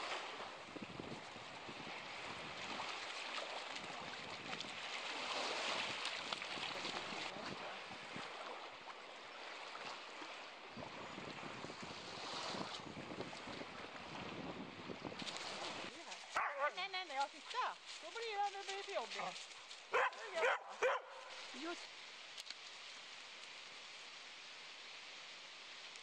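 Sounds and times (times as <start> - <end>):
small waves lapping at shore: 0.0 - 26.0
wind hiss: 10.6 - 26.0.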